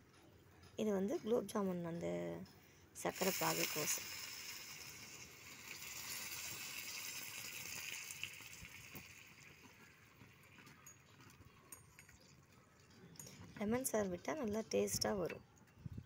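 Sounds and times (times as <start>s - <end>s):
syrup hissing in pot: 3.0s - 10.4s.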